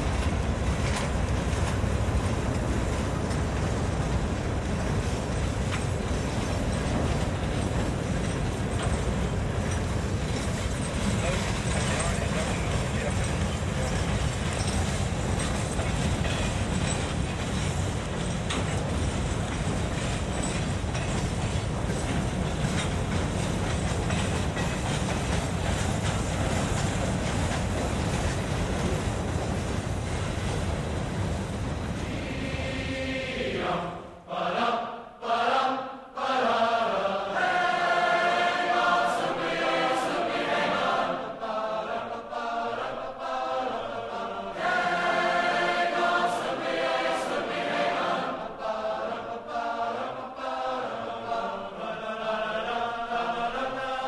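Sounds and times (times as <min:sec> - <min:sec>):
train wheels rolling on rail: 0:00.0 - 0:34.3
choral music with chanting: 0:31.8 - 0:54.0.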